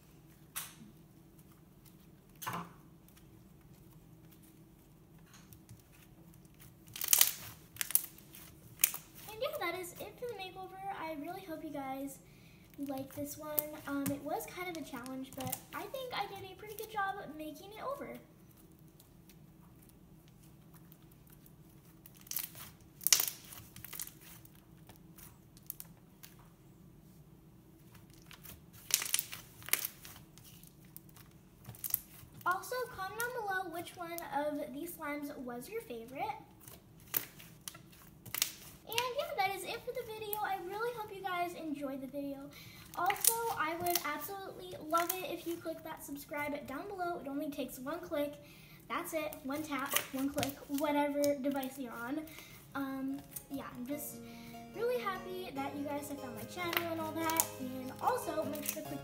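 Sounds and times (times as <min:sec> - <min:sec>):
slime squelching by hand: 0:05.5 - 0:11.6, 0:12.7 - 0:26.4, 0:27.8 - 0:34.2, 0:42.7 - 0:46.8, 0:49.0 - 0:59.0
crackling pops of slime: 0:06.6 - 0:09.3, 0:20.8 - 0:26.4, 0:27.9 - 0:32.6, 0:36.6 - 0:39.2, 0:43.0 - 0:45.2, 0:49.6 - 0:50.9, 0:56.0 - 0:59.0.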